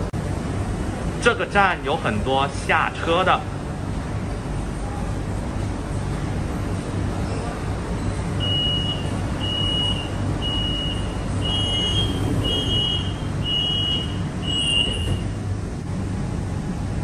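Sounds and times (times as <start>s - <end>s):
train low hum: 10.1s - 17.0s.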